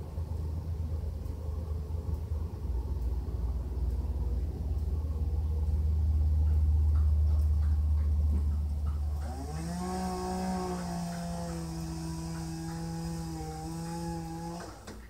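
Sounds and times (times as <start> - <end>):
trucks rumbling past on highway: 0.0 - 15.0
pitched motor tone: 8.9 - 15.0.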